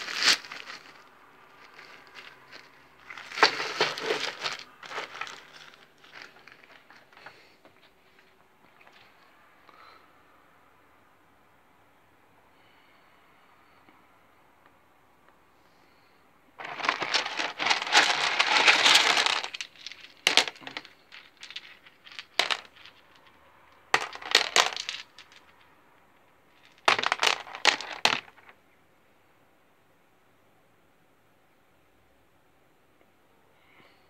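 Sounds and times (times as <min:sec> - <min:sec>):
crystal chunks clinking: 0:16.6 - 0:23.0, 0:24.0 - 0:25.4.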